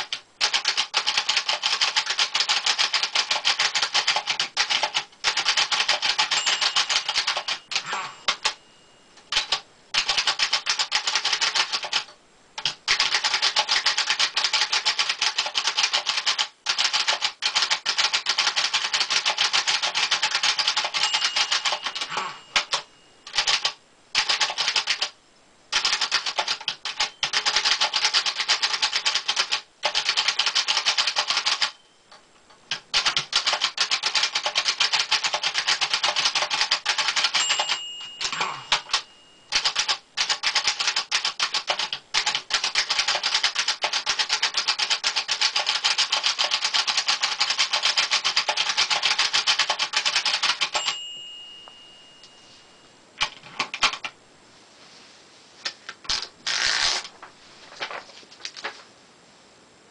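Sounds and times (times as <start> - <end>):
typewriter bell ringing: 2.5 - 12.0, 13.0 - 25.0, 25.8 - 32.0, 33.4 - 52.9
typewriter key clacks: 32.7 - 51.0.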